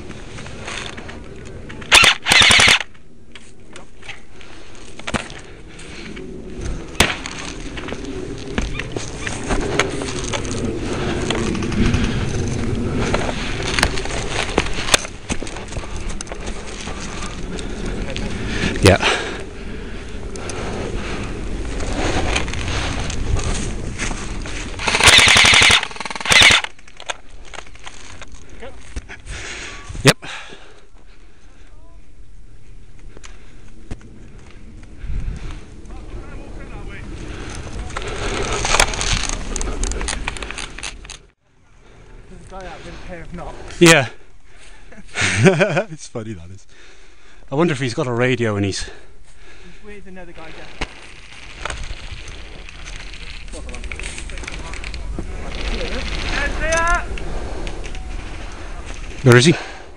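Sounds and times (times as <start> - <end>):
sharp clicks: 1.8 - 3.0, 24.8 - 27.6
airsoft rifle full-auto bursts: 1.9 - 2.8, 24.8 - 26.7.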